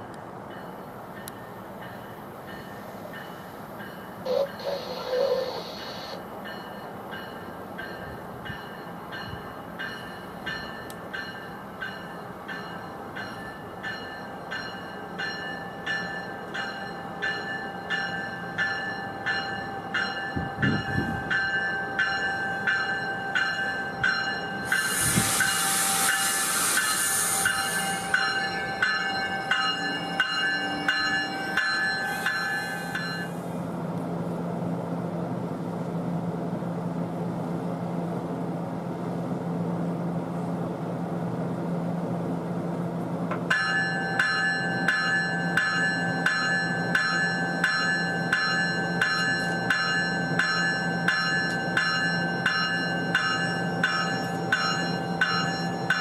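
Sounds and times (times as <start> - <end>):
train bell ringing: 0.0 - 33.7, 43.4 - 56.0
train low hum: 0.0 - 56.0
train rolling in: 0.0 - 56.0
loud hiss of air: 24.6 - 28.7, 32.0 - 33.6.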